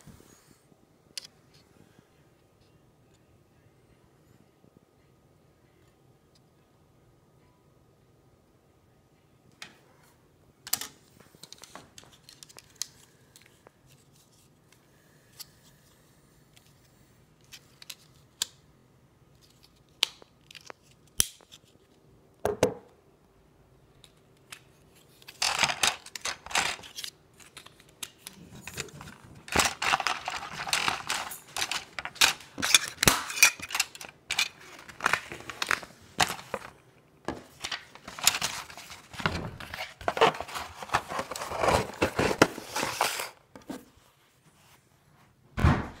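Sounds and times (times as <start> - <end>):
rustling and crinkling of packaging: 24.9 - 44.8.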